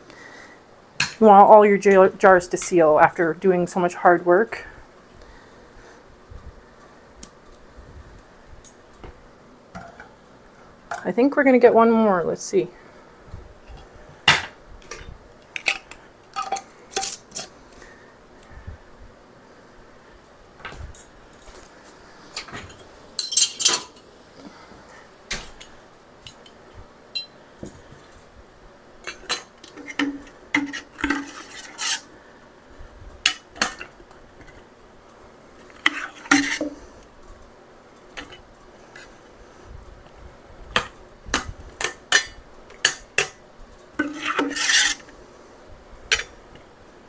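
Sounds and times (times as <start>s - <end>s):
metal spoon clinking on pot and jar: 23.2s - 24.0s.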